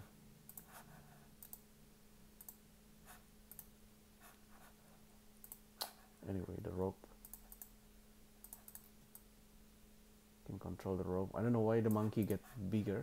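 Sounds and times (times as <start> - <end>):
low steady hum: 0.0 - 13.0
computer mouse clicks: 0.5 - 0.8, 1.4 - 1.6, 2.4 - 2.6, 3.5 - 3.7, 5.4 - 6.0, 7.2 - 7.8, 8.4 - 9.3.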